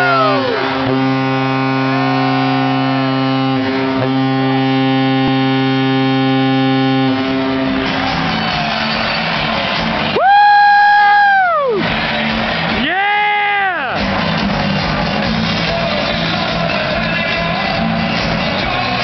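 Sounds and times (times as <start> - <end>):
arena goal horn blast: 0.0 - 10.2.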